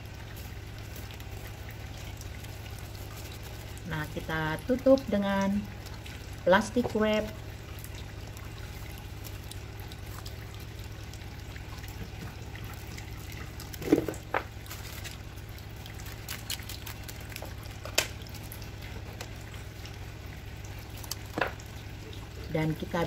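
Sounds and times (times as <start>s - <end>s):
cling wrap crinkling: 0.0s - 4.2s, 12.6s - 19.4s.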